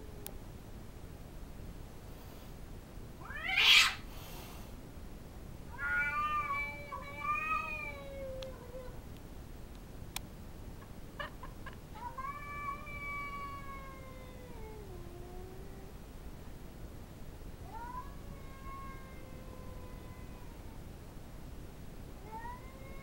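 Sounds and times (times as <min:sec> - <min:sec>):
cat yowling: 0:03.2 - 0:04.0, 0:05.7 - 0:09.0, 0:12.0 - 0:15.9, 0:17.7 - 0:20.7, 0:22.2 - 0:23.0.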